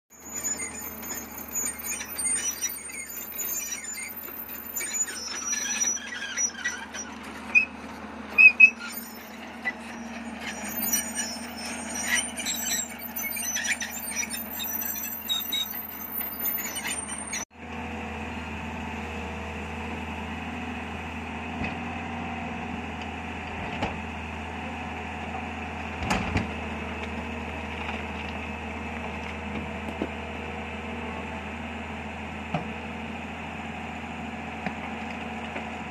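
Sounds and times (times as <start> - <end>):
high-pitched squeaks: 0.1 - 17.5
excavator diesel engine running: 0.1 - 35.9.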